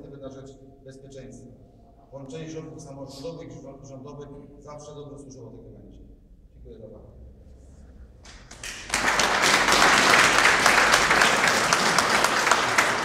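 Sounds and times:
audience applauding: 8.3 - 13.0.

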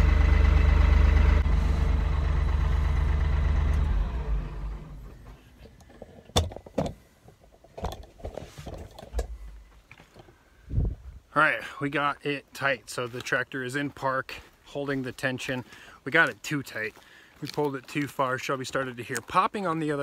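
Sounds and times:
tractor diesel engine running: 0.0 - 6.6.

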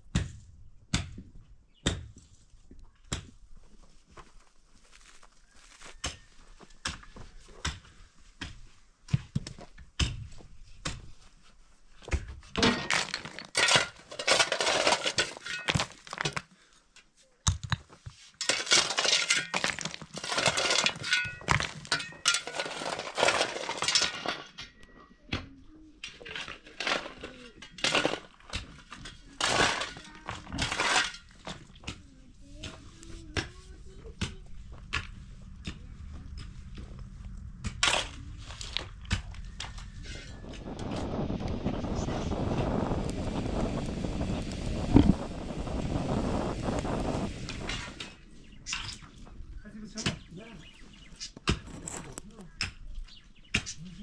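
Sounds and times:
stones and gravel clattering: 12.0 - 16.7, 17.4 - 24.8, 26.0 - 32.0, 34.2 - 49.3, 49.9 - 52.8.

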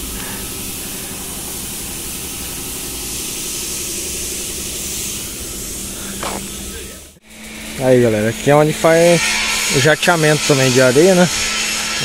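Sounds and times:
compressed air hissing: 0.0 - 7.7.

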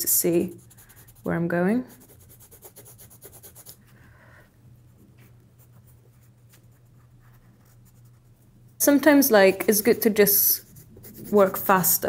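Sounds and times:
coloured pencil scratching on paper: 0.1 - 3.8, 9.6 - 12.0.

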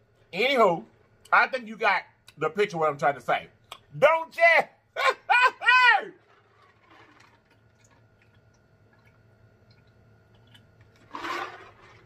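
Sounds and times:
person gulping a drink: 6.2 - 12.0.

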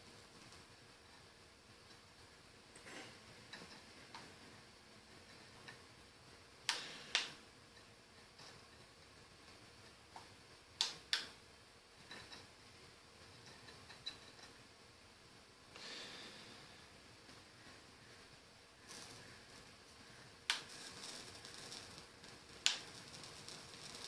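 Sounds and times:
short soft hiss: 6.6 - 7.5, 15.7 - 24.0.

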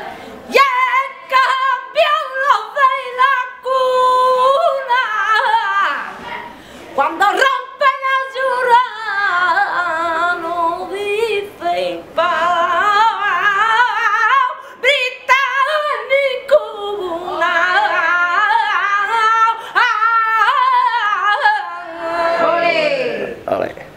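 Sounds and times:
singer breathing: 0.0 - 0.5, 6.5 - 7.0, 19.6 - 19.8
woman singing unaccompanied: 0.5 - 6.3, 7.0 - 23.1.

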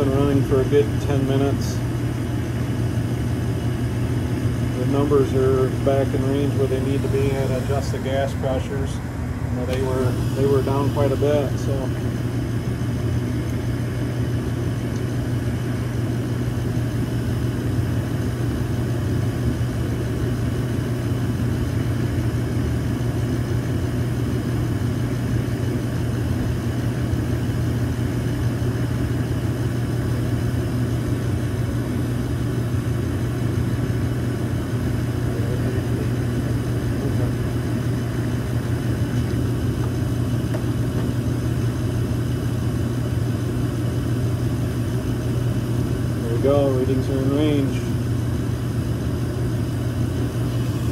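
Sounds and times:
furnace blower motor humming: 0.0 - 50.9
airflow noise: 0.1 - 14.3.

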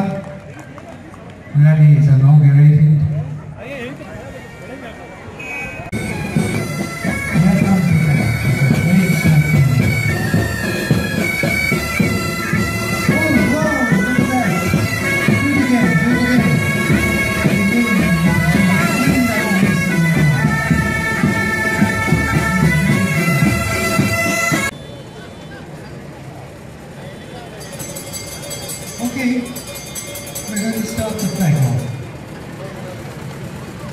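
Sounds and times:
bagpipe band playing: 4.3 - 24.8, 27.9 - 32.0.

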